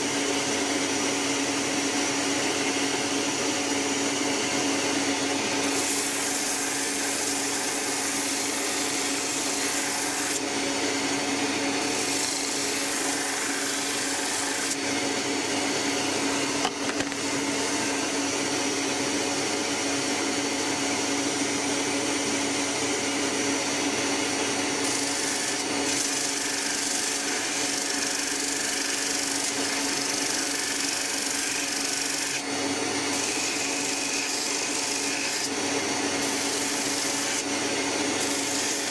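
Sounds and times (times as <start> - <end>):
bench grinder motor running: 0.0 - 38.9
wood grinding on wheel: 5.6 - 10.5, 11.7 - 14.8.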